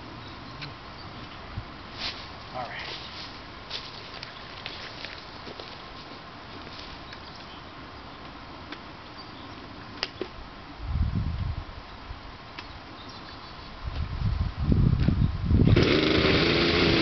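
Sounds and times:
chainsaw starter cord pulls: 15.6s - 17.0s.

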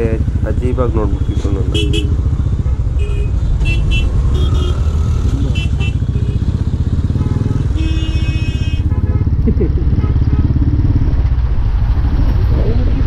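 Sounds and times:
motorcycle engine idling: 0.0s - 11.8s
traffic horn beeps: 0.9s - 2.2s, 2.9s - 9.4s.

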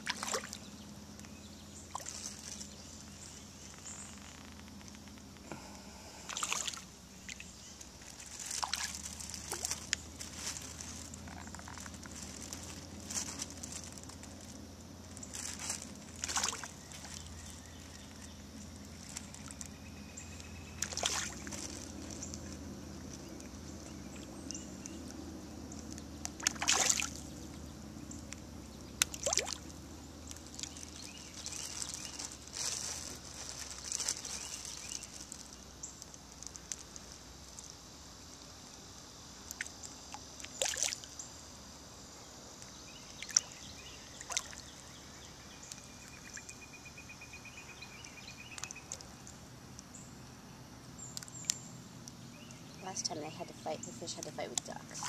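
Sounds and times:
fish splashing at surface: 0.0s - 0.6s, 6.2s - 7.5s, 8.2s - 13.2s, 15.4s - 17.3s, 20.7s - 22.0s, 26.3s - 27.3s, 29.0s - 29.7s
low outdoor background: 0.0s - 55.0s.

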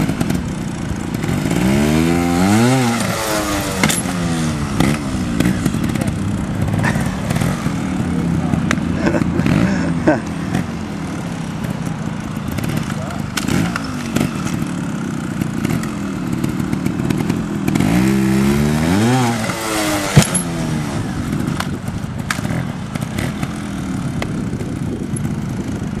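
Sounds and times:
motorcycle engine revving: 0.0s - 26.0s
motorcycle landing knock: 20.0s - 20.7s.

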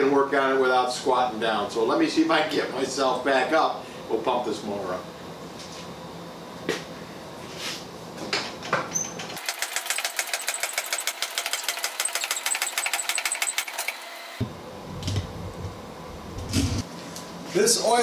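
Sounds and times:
scissor lift rapid clicking: 9.4s - 14.0s.

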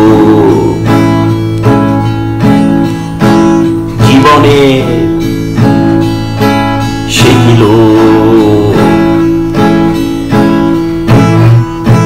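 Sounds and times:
man singing wavering note: 0.0s - 1.2s, 6.9s - 9.7s
acoustic guitar strummed: 0.0s - 12.0s.

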